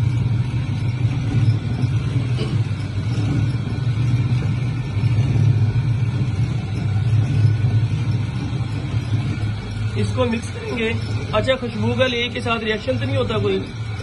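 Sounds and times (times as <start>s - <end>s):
machine motor drone: 0.0s - 14.0s.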